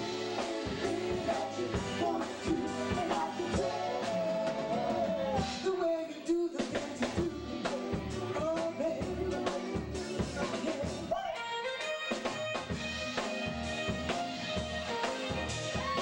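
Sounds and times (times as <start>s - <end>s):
women singing: 0.0s - 5.6s
man singing: 0.0s - 11.5s
drum kit: 0.0s - 16.0s
keyboard: 0.0s - 16.0s.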